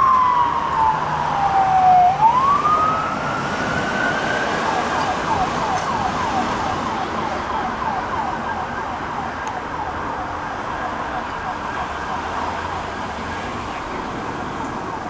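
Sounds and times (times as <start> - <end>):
police siren wailing and yelping: 0.0 - 15.0.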